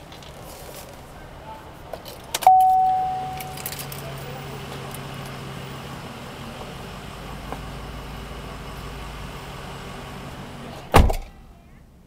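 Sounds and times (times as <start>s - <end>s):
vehicle engine idling: 2.5s - 10.9s.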